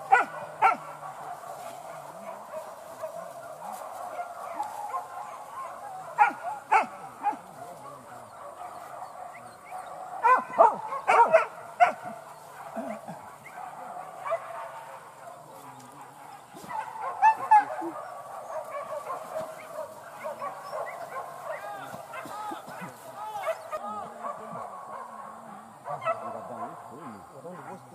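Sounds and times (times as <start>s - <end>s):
dogs barking and yelping: 0.0s - 27.9s.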